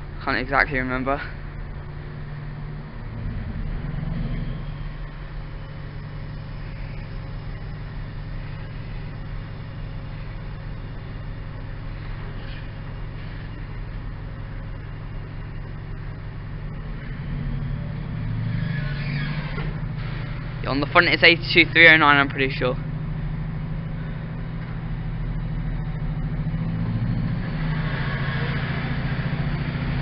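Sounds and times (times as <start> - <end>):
diesel locomotive engine drone: 0.0 - 30.0.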